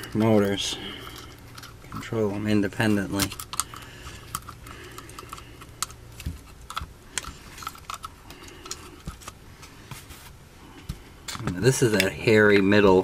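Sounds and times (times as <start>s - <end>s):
plastic parts clicking: 3.0s - 9.4s.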